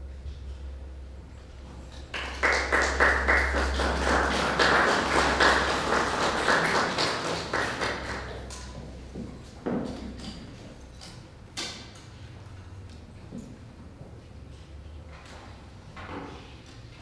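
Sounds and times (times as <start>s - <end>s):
audience applauding: 2.1s - 8.6s.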